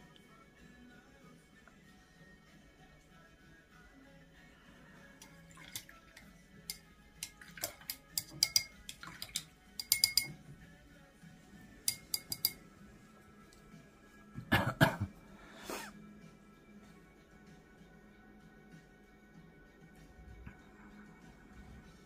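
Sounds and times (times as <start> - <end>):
brush clinking against glass: 5.2 - 10.5, 11.8 - 12.7
water splashing: 5.3 - 6.0, 7.3 - 8.0, 8.8 - 9.5.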